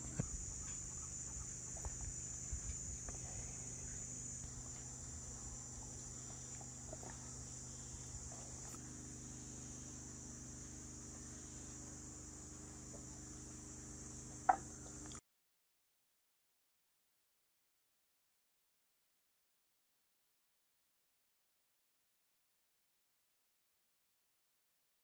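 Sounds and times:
faint low hum: 0:00.0 - 0:15.2
high-pitched insect chorus: 0:00.0 - 0:15.2.

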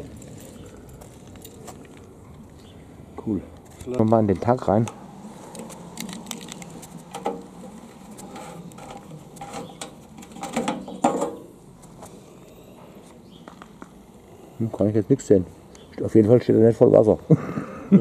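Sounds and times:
metal fuel cap clicking and scraping: 0:04.8 - 0:11.5.

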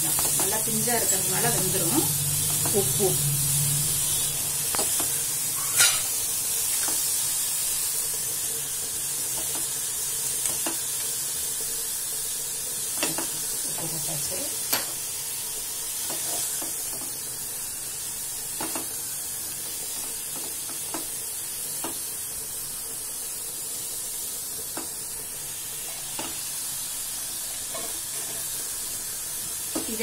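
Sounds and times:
vegetables sizzling in oil: 0:00.0 - 0:30.0
spatula scraping metal pot: 0:05.6 - 0:06.1.

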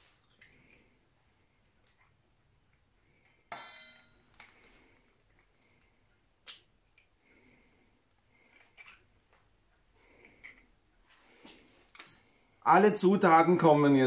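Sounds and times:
egg knocking on metal pot: 0:03.5 - 0:04.2.

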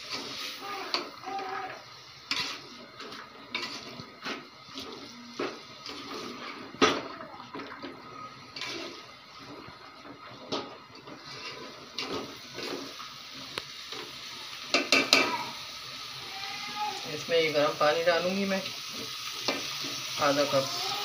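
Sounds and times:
food sizzling in a pot: 0:00.0 - 0:21.0
spatula scraping and knocking pot: 0:02.3 - 0:07.0.

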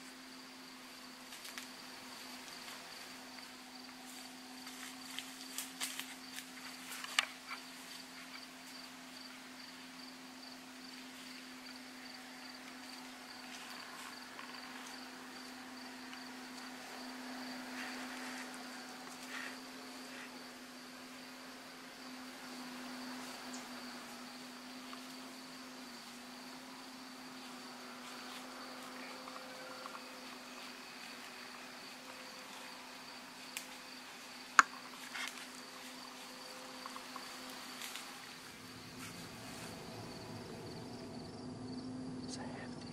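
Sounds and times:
cricket chirping: 0:00.0 - 0:42.9
steady low hum: 0:00.0 - 0:42.9.

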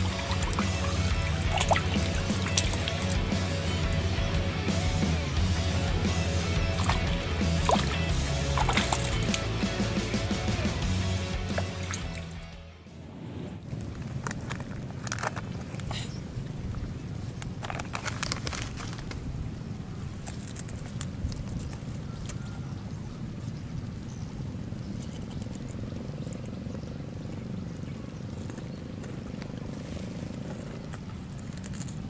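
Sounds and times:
low outdoor rumble: 0:00.0 - 0:32.0
sharp clicks: 0:06.7 - 0:09.5.

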